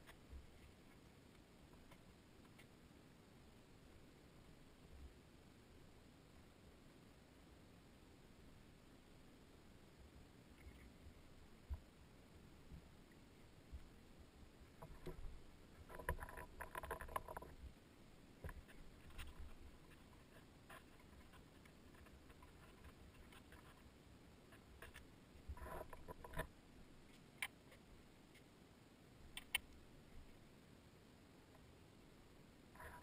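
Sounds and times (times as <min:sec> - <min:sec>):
hands scratching and rustling: 0:18.4 - 0:28.5.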